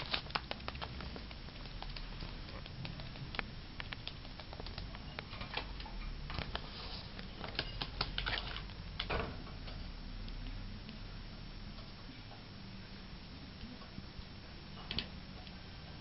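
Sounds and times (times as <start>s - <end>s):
scratchy rustles: 0.0s - 5.5s, 6.3s - 8.7s
bird feet and beak clicking: 0.0s - 6.6s.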